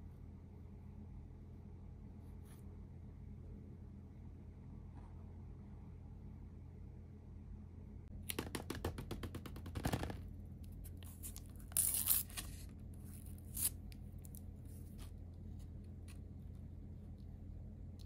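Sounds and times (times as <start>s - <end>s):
paper ripping: 11.1s - 15.0s.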